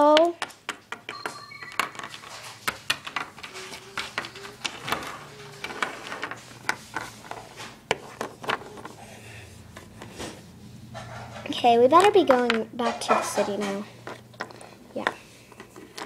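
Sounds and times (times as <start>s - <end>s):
plastic toy figures clicking: 2.9s - 6.3s.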